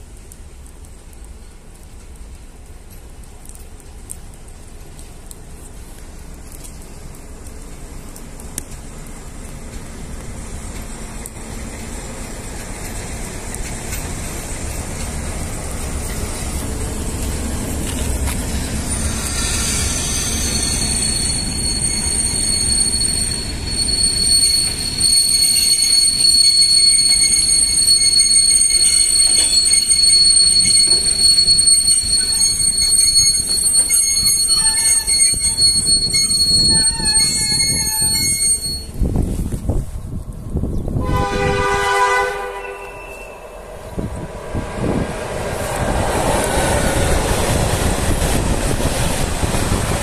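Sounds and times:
diesel locomotive engines rumbling: 0.0 - 50.0
steel wheel squeal: 18.6 - 39.1, 42.5 - 43.7.

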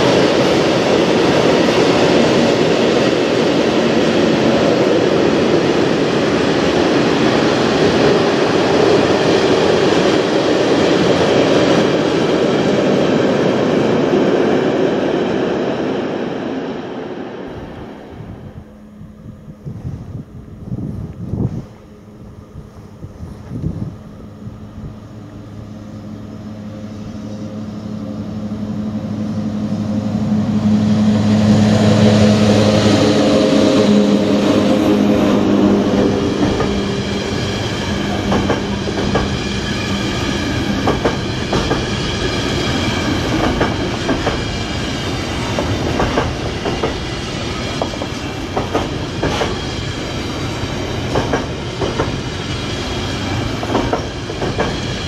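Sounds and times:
electric locomotive humming: 0.0 - 55.0
wheels clicking over rail joints: 45.2 - 49.6.

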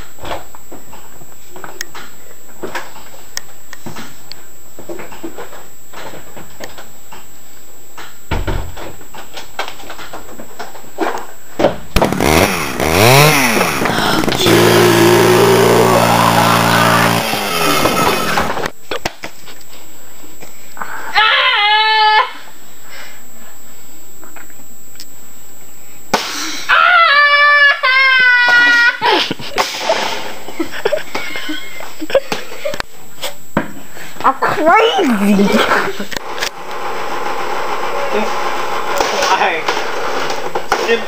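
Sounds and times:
chainsaw revving: 12.0 - 18.7.

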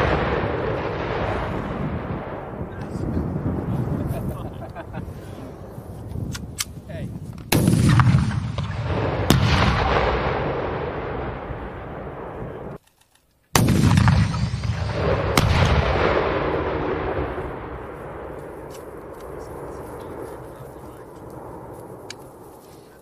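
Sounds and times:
launcher firing blast with echo: 0.0 - 4.0, 7.5 - 12.8, 13.5 - 19.8
round hitting target bang: 13.6 - 17.8.

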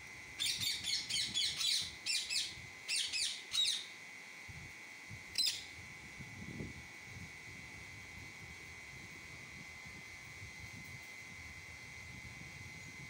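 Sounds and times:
parakeet chirping: 0.4 - 3.9.

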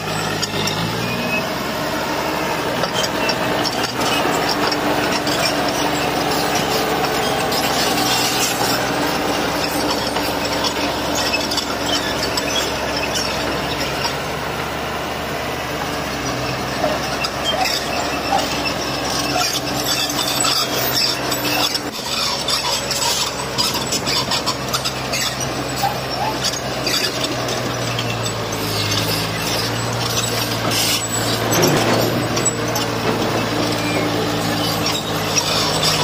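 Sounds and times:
bulldozer tracks squealing and clattering: 0.0 - 36.0
diesel engine running: 0.0 - 36.0
stone scraping: 16.9 - 36.0.

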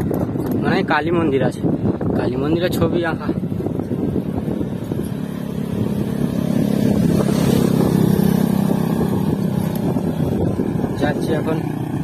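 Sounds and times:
motorbike passing: 1.7 - 12.0.

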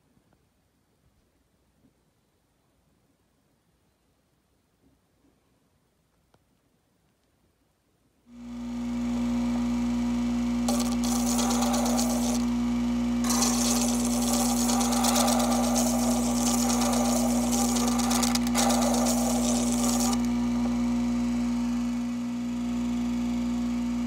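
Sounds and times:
machine motor humming: 8.4 - 24.0
stone scraping on spinning lap: 10.7 - 12.5, 13.2 - 20.4.

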